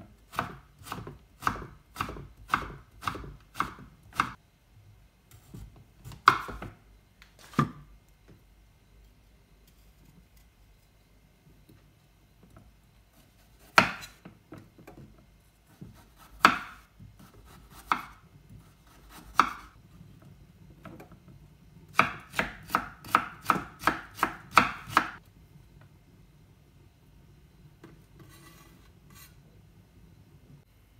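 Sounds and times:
knife chopping on cutting board: 0.3s - 4.4s, 5.3s - 6.7s, 13.6s - 14.3s, 15.7s - 19.7s, 21.9s - 25.2s.

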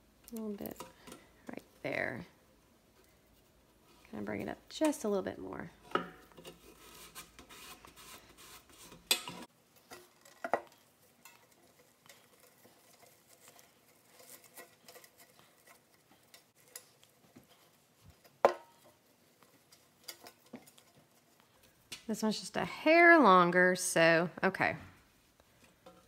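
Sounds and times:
ribbon rustling and rubbing: 6.4s - 21.9s.

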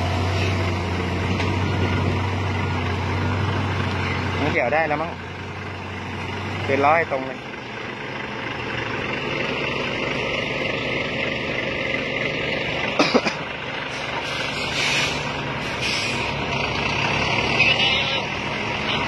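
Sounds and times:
diesel trucks running: 0.0s - 19.0s
air brake hisses: 13.9s - 16.4s.

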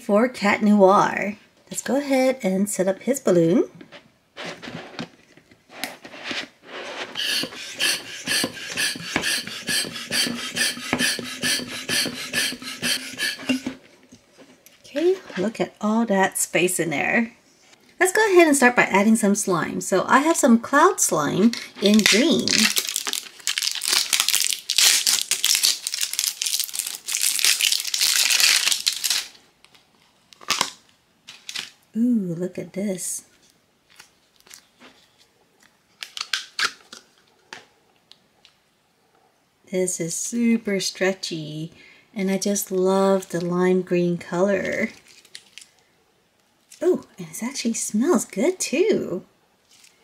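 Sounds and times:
plastic hand pump pumping: 7.1s - 13.8s
plastic handling noises: 21.4s - 31.8s
plastic tub crinkling: 21.5s - 29.8s.

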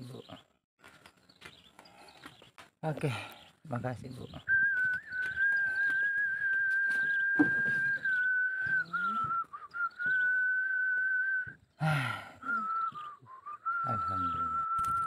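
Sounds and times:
high whistle-like tone: 4.5s - 11.6s, 12.5s - 15.0s.

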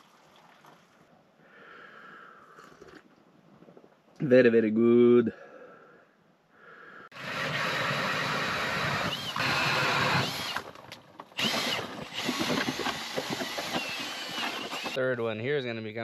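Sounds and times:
drill boring through ice: 7.1s - 10.8s, 11.4s - 15.0s.

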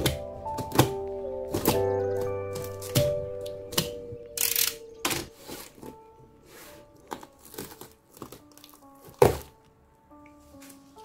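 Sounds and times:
soft background music: 0.0s - 11.0s
cardboard and packing tape tearing: 7.1s - 9.6s.

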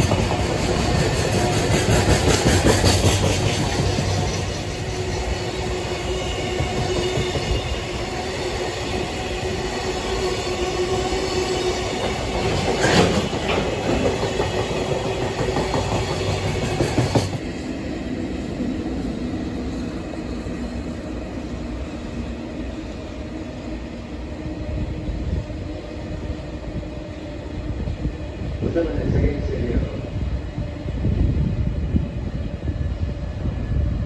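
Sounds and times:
train wheels clacking over rail joints: 0.0s - 4.8s, 11.9s - 17.4s
distant freight train rumble: 0.0s - 34.0s.

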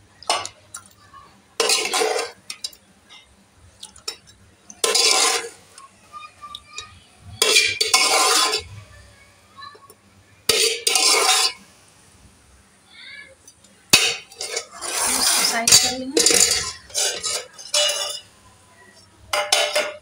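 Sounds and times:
metal ladle scraping metal pot: 4.8s - 5.6s, 7.4s - 8.7s, 14.2s - 18.2s.

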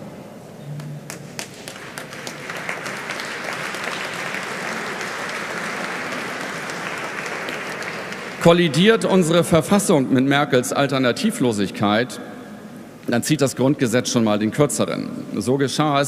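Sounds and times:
audience applauding: 1.0s - 8.7s.

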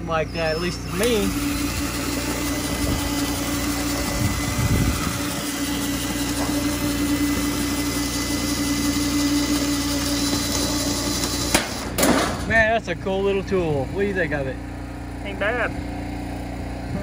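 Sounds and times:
cordless drill whining: 0.1s - 12.0s
metal panel being sheared: 0.3s - 12.8s.

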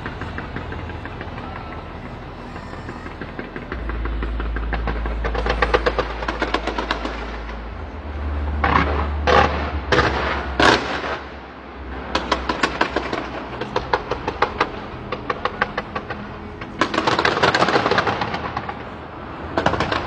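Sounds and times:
steady low drone: 0.0s - 20.0s
fireworks popping and banging: 12.1s - 18.9s, 19.6s - 20.0s.

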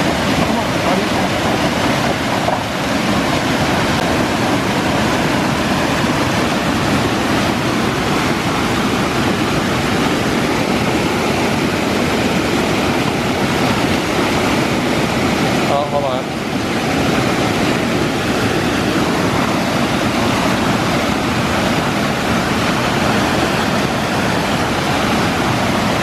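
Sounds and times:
water rushing over spillway: 0.0s - 26.0s.

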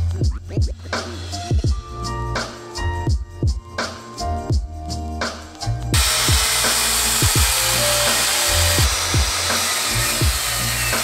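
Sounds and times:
background music with bass beat: 0.0s - 11.0s
power saw cutting wood: 6.0s - 11.0s.

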